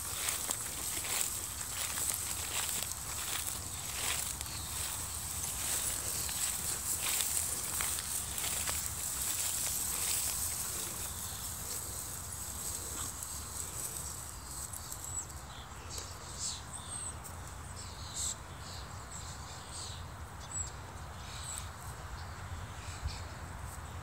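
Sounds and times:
dry hay rustling and crackling: 0.0 - 16.2.

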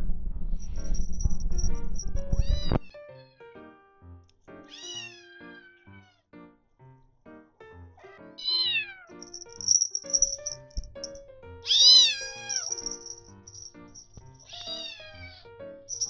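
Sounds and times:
kitten meowing: 2.3 - 3.4, 4.7 - 6.2, 8.4 - 9.2, 11.6 - 12.6, 14.5 - 15.5.

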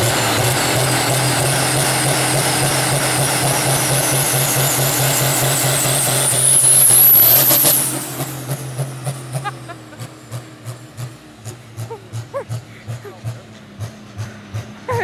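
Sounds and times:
high engine whistle: 0.0 - 9.6
tractor diesel engine: 0.0 - 15.0.

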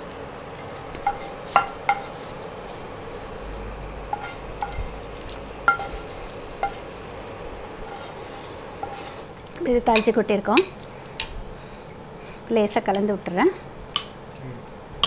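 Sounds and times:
oil sizzling: 0.0 - 12.3
wooden spatula scraping pan: 0.6 - 9.4.

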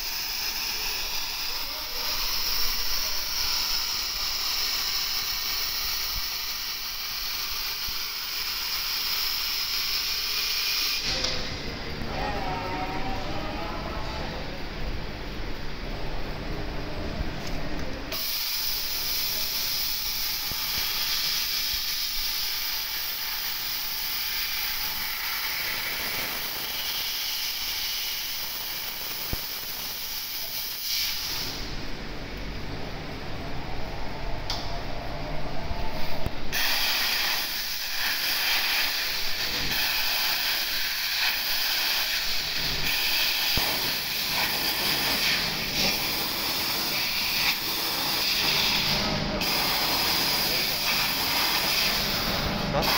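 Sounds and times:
gas jet hissing: 0.0 - 11.6, 18.1 - 31.8, 36.0 - 52.9.

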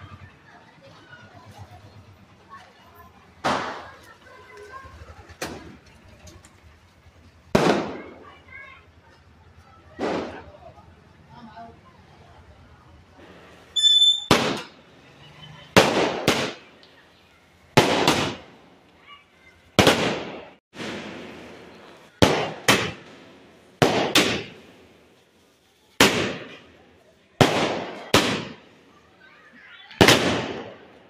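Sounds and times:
fireworks bangs echoing: 3.4 - 4.3, 7.4 - 8.6, 9.9 - 10.8, 13.2 - 14.8, 15.7 - 16.8, 17.7 - 18.8, 19.7 - 25.2, 25.9 - 28.8, 29.8 - 31.0.

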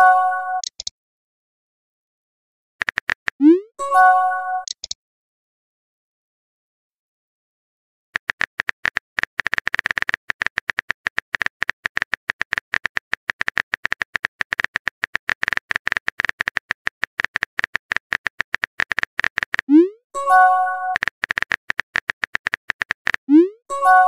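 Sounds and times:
short high-pitched clicks: 0.6 - 0.9, 2.8 - 3.6, 4.6 - 5.0, 8.2 - 24.0.

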